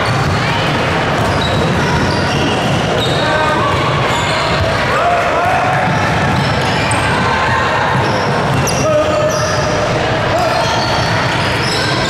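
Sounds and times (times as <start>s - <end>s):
basketball bouncing on court: 0.0s - 4.8s, 5.4s - 10.0s
shoe squeaks: 1.2s - 4.7s, 8.0s - 12.0s.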